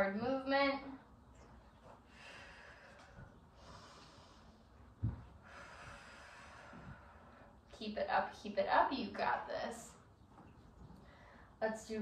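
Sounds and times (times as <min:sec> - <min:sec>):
woman breathing: 0:02.0 - 0:07.7, 0:11.0 - 0:11.6.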